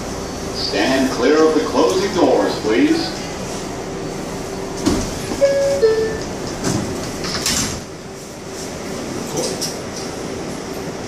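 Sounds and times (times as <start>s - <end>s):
two-tone door chime: 5.4s - 6.3s.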